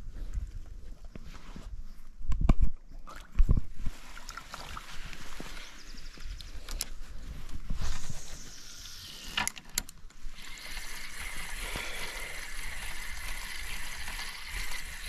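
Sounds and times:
fishing reel whirring: 0:08.0 - 0:09.5, 0:10.3 - 0:15.0
fishing reel clicks: 0:08.5 - 0:15.0.

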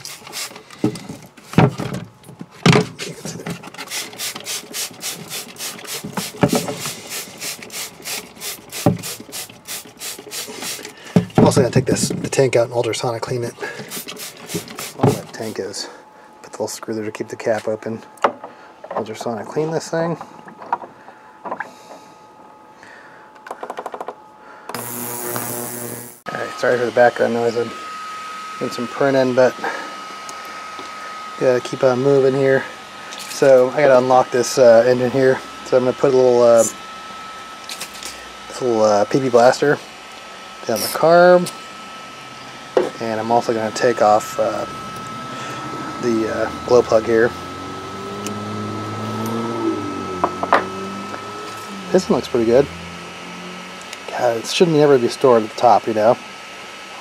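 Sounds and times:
spray bottle hissing: 0:00.0 - 0:00.6, 0:03.8 - 0:11.0, 0:13.8 - 0:15.6
ultrasonic cleaner buzzing hum: 0:00.0 - 0:23.4, 0:24.1 - 0:57.0.

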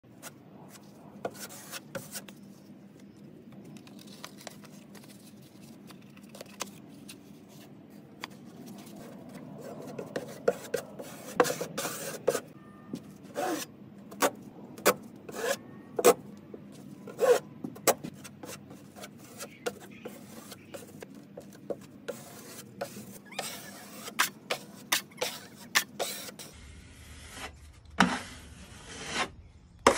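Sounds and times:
drywall knife scraping compound: 0:18.4 - 0:29.9.

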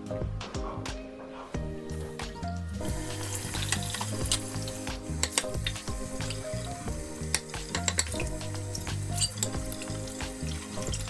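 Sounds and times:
soft background music: 0:00.0 - 0:11.0
pan knocking: 0:02.9 - 0:06.4, 0:07.3 - 0:11.0
crockery clinking: 0:07.7 - 0:08.3, 0:09.1 - 0:09.8.

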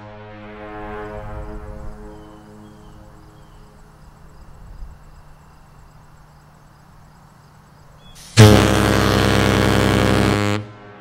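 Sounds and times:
ship air horns blowing: 0:00.0 - 0:02.5, 0:08.1 - 0:11.0.

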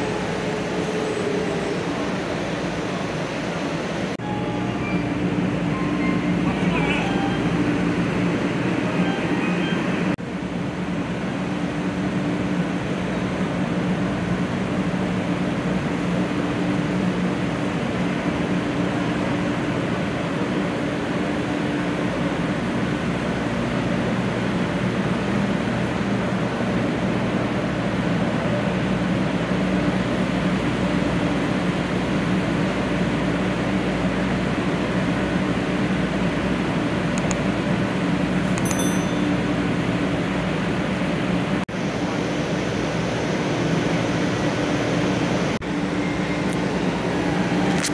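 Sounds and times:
short high beeps: 0:04.2 - 0:07.6, 0:38.6 - 0:39.5.

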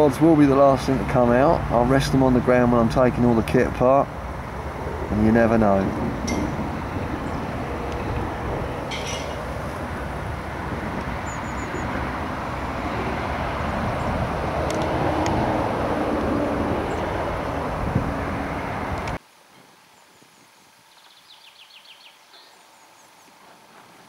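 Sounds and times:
road traffic rumble: 0:00.0 - 0:19.2.

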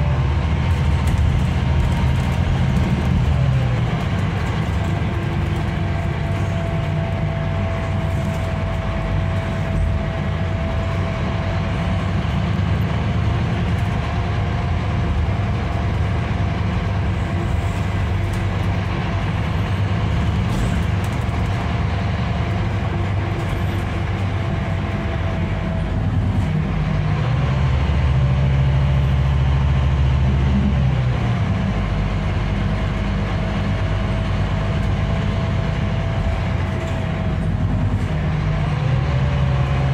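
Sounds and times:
engine and road rumble: 0:00.0 - 0:39.9.

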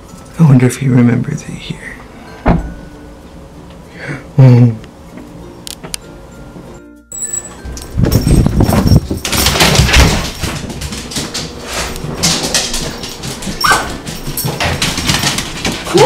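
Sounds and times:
dogs scuffling on tiled floor: 0:07.6 - 0:16.0
dog whining: 0:13.6 - 0:14.0.

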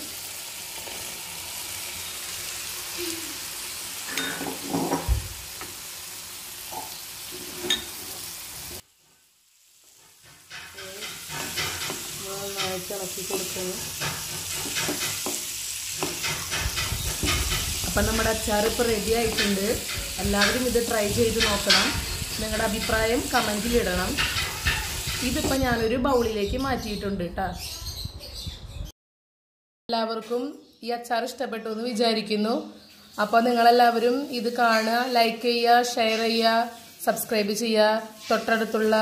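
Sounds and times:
gravy sizzling in a pan: 0:00.0 - 0:25.8, 0:32.8 - 0:39.0
spatula scraping and knocking pan: 0:09.9 - 0:25.8.

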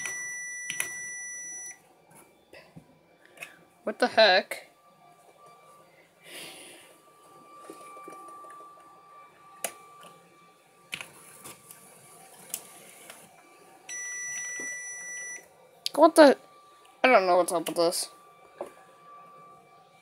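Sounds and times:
steady electronic beep: 0:00.0 - 0:01.8, 0:13.9 - 0:20.0.

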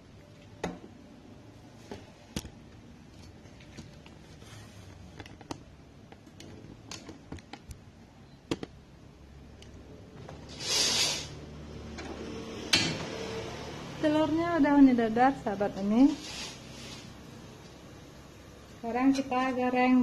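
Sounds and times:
brief loud hiss: 0:10.5 - 0:11.4.

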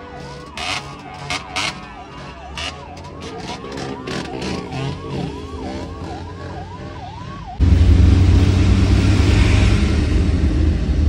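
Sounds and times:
ambulance siren yelping: 0:00.0 - 0:07.6
vehicle road and engine noise: 0:00.0 - 0:11.0.

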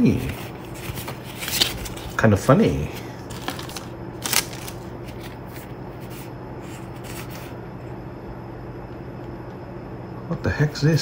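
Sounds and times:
cards rustling and swishing: 0:00.0 - 0:02.5, 0:03.3 - 0:07.6.

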